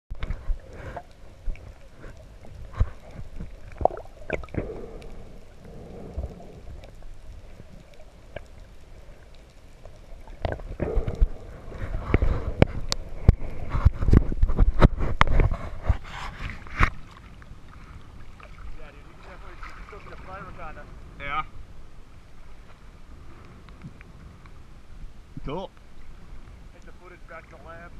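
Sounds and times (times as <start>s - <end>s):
sharp underwater clicks and knocks: 0.1s - 17.5s
muffled underwater rumble: 0.1s - 27.9s.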